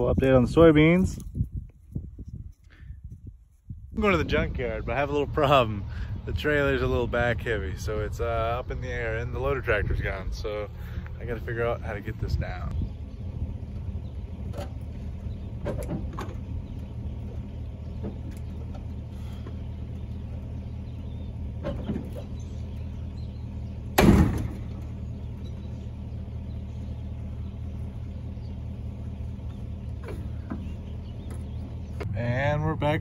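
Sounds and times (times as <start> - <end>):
vehicle engine idling: 1.9 - 33.0
metal clunks: 14.4 - 16.8, 21.5 - 22.6, 23.9 - 25.6, 29.4 - 32.1.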